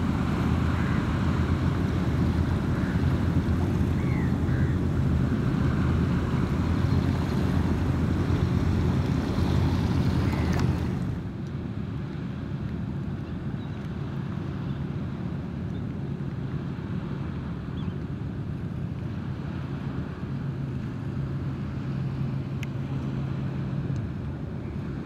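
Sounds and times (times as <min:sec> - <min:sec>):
steady low rumble: 0:00.0 - 0:13.5.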